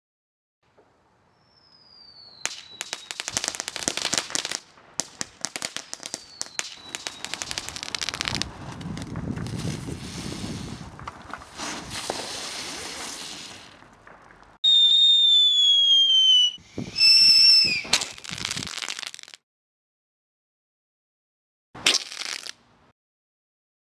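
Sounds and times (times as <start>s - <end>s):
falling firework whistle: 1.3s - 4.6s, 5.9s - 8.5s, 14.6s - 19.3s
high whistling fireworks: 1.3s - 19.4s
firecrackers crackling: 2.2s - 19.4s, 21.8s - 22.6s.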